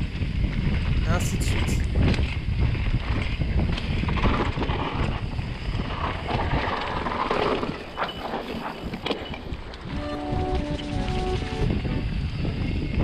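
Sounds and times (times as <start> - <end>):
bike rattles and clicks: 0.0 - 10.0
tyres rumbling on dirt trail: 0.0 - 13.0
wind buffeting microphone: 0.0 - 13.0.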